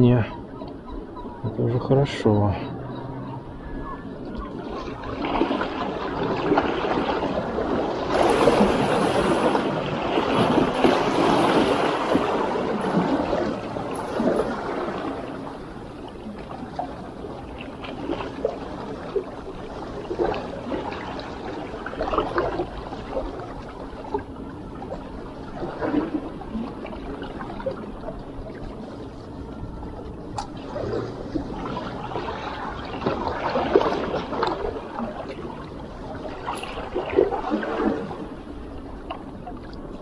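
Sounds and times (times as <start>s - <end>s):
waves washing among rocks: 4.6s - 24.3s, 30.3s - 38.5s.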